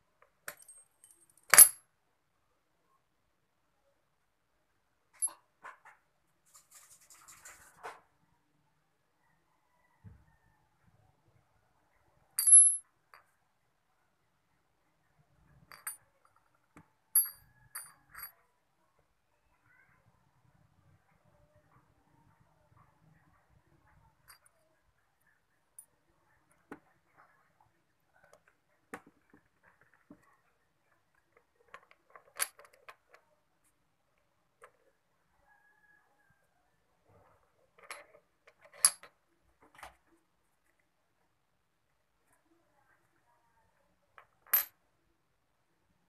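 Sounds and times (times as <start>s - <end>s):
metal parts clinking: 0.5s - 1.8s.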